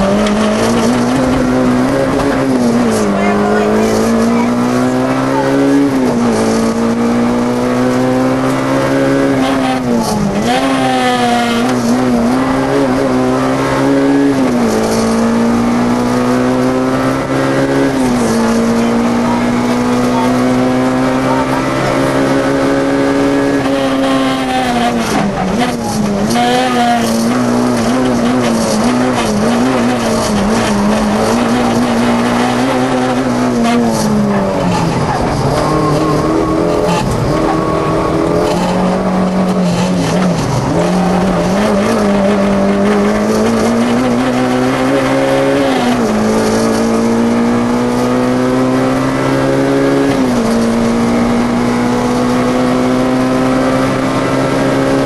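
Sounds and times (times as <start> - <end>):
car engine at high revs: 0.0 - 55.0.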